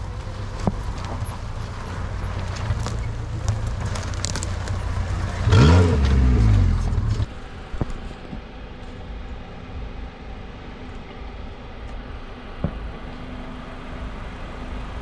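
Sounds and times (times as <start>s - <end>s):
engine revving: 0.0s - 7.4s
clicks and crackles: 2.4s - 5.0s.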